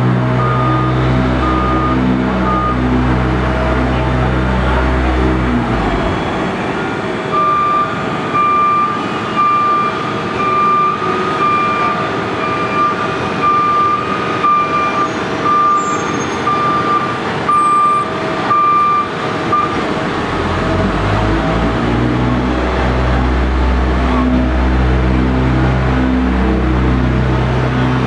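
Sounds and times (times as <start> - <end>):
diesel engines running: 0.0 - 28.0
truck backup alarm beeping: 0.2 - 20.4.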